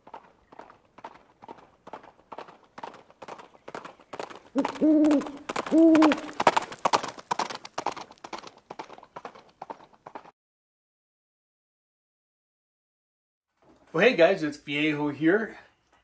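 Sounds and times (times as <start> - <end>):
clip-clop knocks: 0.0 - 10.3
loud hooting calls: 4.6 - 6.4.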